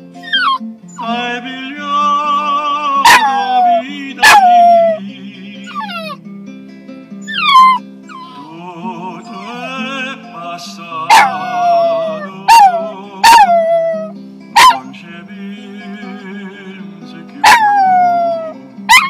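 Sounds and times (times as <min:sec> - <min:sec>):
puppy howling: 0:00.2 - 0:01.2, 0:03.0 - 0:05.0, 0:05.6 - 0:06.2, 0:07.2 - 0:08.6, 0:11.1 - 0:14.9, 0:17.4 - 0:19.0
sung ballad with vibrato voice: 0:00.9 - 0:06.2, 0:08.3 - 0:14.0, 0:14.8 - 0:18.4.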